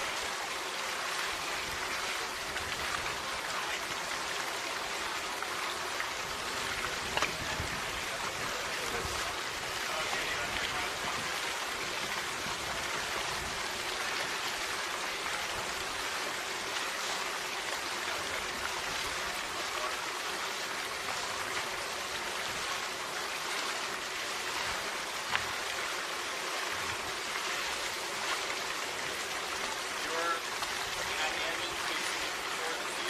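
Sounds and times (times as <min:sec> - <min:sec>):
steady rushing hiss: 0:00.0 - 0:33.0.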